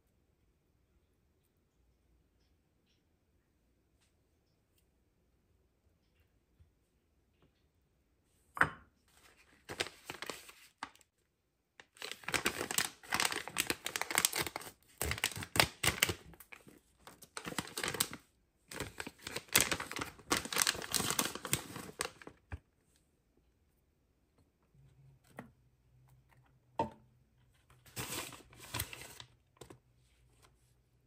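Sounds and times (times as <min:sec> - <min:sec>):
plastic bag crinkling: 0:09.2 - 0:11.0, 0:11.8 - 0:22.5.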